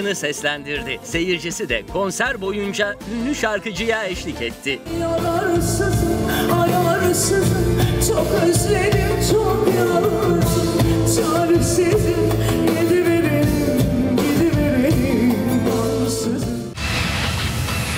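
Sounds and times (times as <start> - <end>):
woman singing into a microphone: 4.9 - 16.7.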